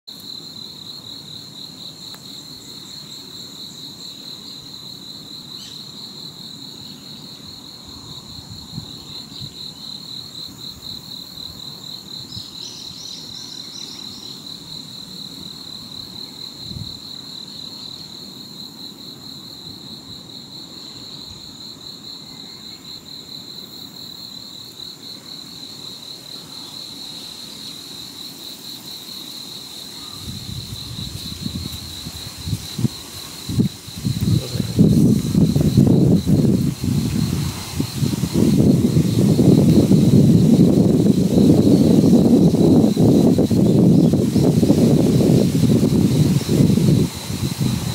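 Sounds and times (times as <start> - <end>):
insect trilling: 5.4 - 14.9, 24.5 - 47.9.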